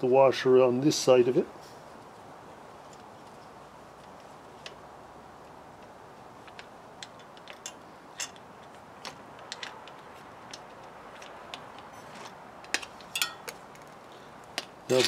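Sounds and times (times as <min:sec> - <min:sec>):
faint metallic clicks and ticks: 0:05.8 - 0:14.7.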